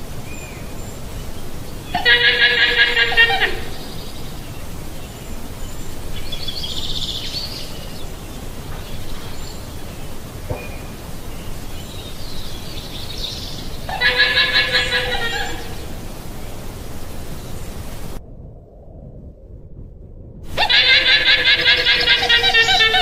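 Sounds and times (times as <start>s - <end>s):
background hiss: 0.0s - 23.0s
llama calling: 1.9s - 4.0s, 13.8s - 16.0s, 20.5s - 23.0s.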